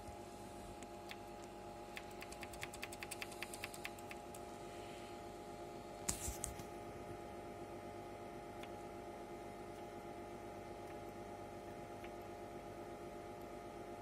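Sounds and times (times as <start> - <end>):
steady hum: 0.0 - 14.0
keyboard typing clicks: 1.0 - 4.4, 10.8 - 12.3.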